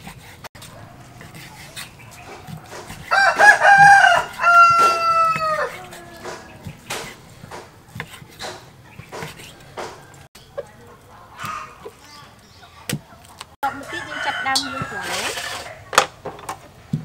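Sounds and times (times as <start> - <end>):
rooster crowing: 2.2 - 6.8, 13.6 - 15.3.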